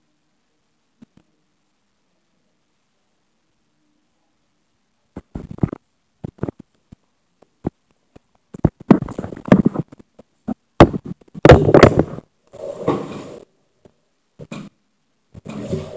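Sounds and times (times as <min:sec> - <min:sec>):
microphone handling knocks and rubbing: 0:05.2 - 0:06.7, 0:08.5 - 0:12.2.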